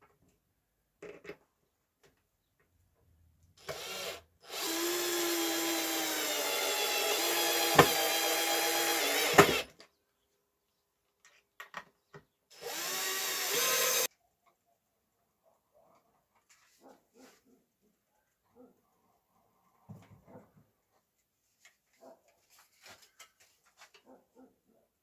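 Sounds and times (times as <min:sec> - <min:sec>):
electric drill driving screws: 0:03.6 - 0:09.7, 0:12.5 - 0:14.1.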